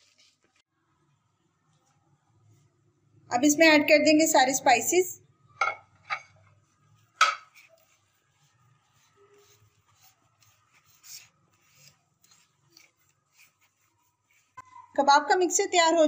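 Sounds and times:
hand squishing food mixture: 0:07.6 - 0:14.9.

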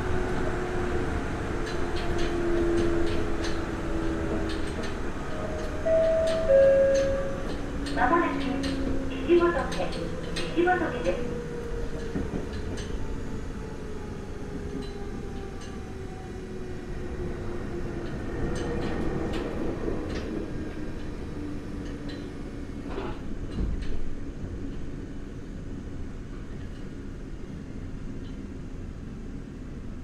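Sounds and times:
train wheel and track rumble: 0:00.0 - 0:30.0
train motor tone: 0:05.7 - 0:10.1.

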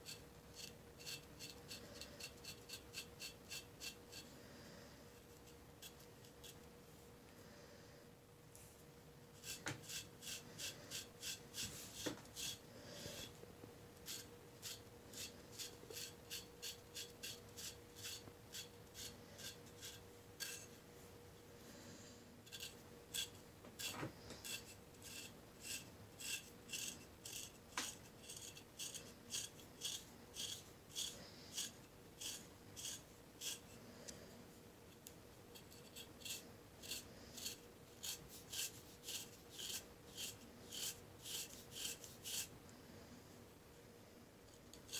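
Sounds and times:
knife scraping skin: 0:00.0 - 0:04.2, 0:09.4 - 0:13.3, 0:14.0 - 0:20.7, 0:22.5 - 0:33.6, 0:35.6 - 0:42.5.

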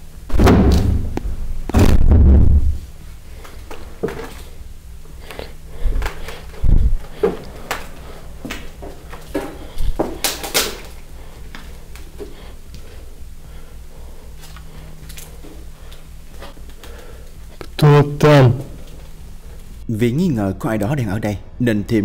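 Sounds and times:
heavy door banging shut: 0:00.3 - 0:02.7
dull thump: 0:00.3 - 0:02.8.

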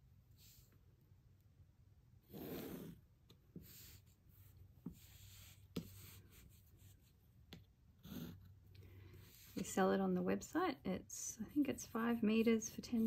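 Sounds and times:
pencil scratching: 0:02.3 - 0:07.2, 0:08.0 - 0:09.8
light pencil taps: 0:07.4 - 0:07.7.

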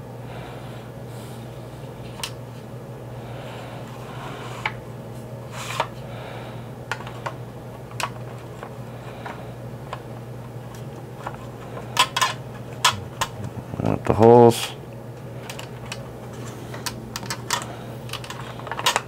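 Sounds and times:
low hum: 0:06.4 - 0:18.7
plastic toy parts clicking: 0:16.8 - 0:19.0.

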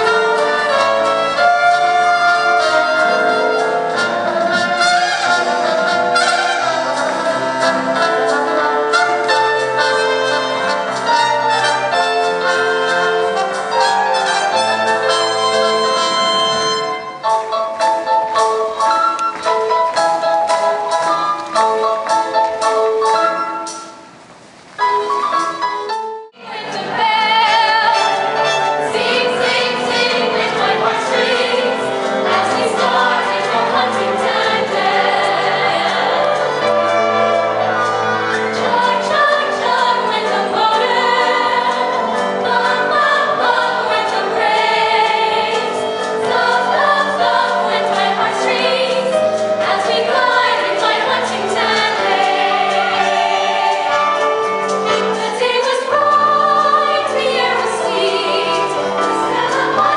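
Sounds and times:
chorus singing: 0:00.0 - 0:23.2, 0:26.4 - 0:59.9
instrumental accompaniment: 0:00.0 - 0:59.9.

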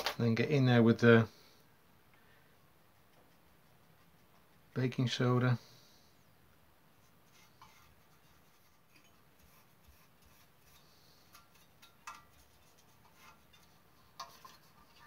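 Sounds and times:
paintbrush brushing: 0:02.6 - 0:05.3, 0:06.9 - 0:15.0.

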